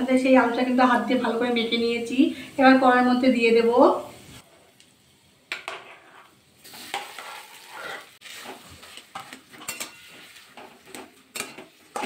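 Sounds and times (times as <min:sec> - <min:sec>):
light sizzle of hot oil: 0:00.0 - 0:12.0
spatula scraping and knocking: 0:05.5 - 0:12.0.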